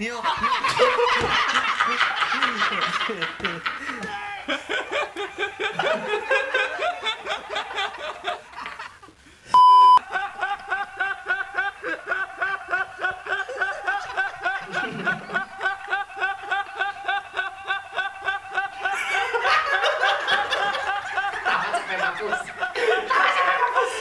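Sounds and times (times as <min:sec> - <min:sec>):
people laughing hard: 0:00.0 - 0:09.2, 0:10.0 - 0:24.0
short electronic beep: 0:09.6 - 0:10.0.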